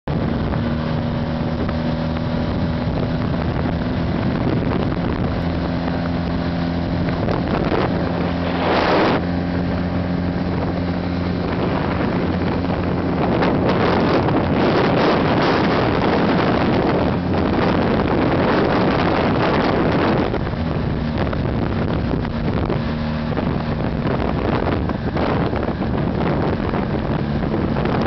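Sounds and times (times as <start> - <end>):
motorcycle engine running: 0.0 - 28.0
wind buffeting microphone: 0.0 - 28.0.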